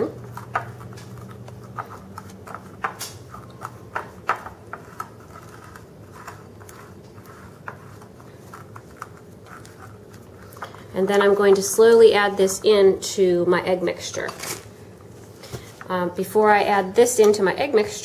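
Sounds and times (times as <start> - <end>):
whisk tapping and scraping bowl: 0.0 - 13.1.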